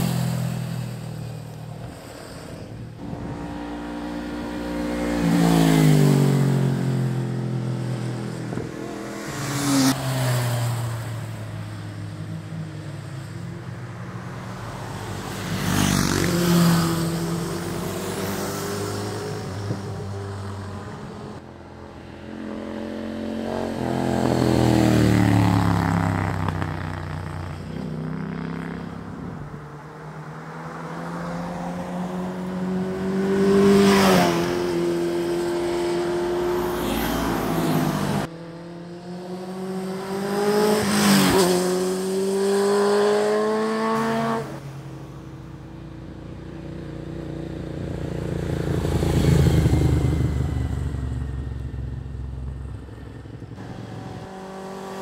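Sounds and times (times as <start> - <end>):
motorcycles passing by: 0.0 - 55.0.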